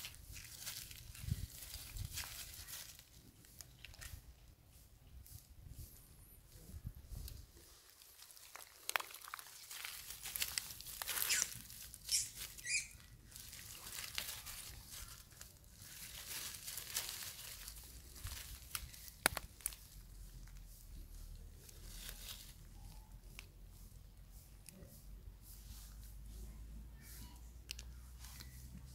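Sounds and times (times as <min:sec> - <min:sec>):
dry leaves rustling: 0:00.0 - 0:06.0, 0:06.9 - 0:26.4
short high squeaks: 0:11.1 - 0:13.1.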